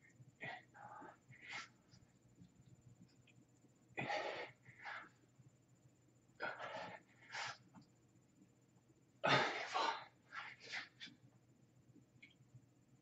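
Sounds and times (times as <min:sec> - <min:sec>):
man huffing heavy breaths: 0:04.0 - 0:05.2.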